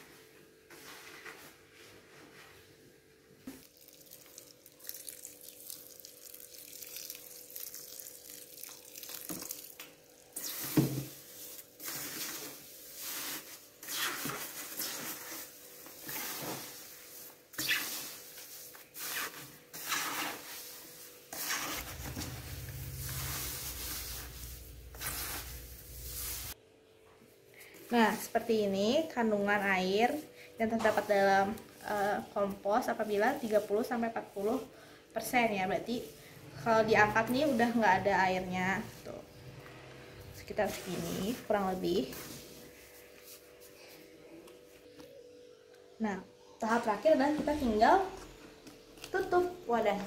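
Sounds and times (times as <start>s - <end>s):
compost rustling and scraping in bucket: 9.0s - 26.6s, 27.9s - 43.8s.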